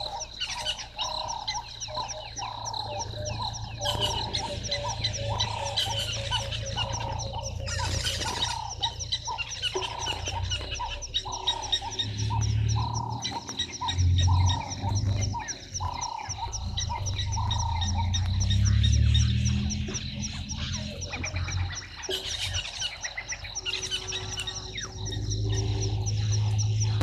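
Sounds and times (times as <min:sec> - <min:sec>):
fast high-pitched ticking: 0:00.0 - 0:27.0
frogs croaking: 0:00.0 - 0:27.0
low rumble: 0:01.3 - 0:22.0.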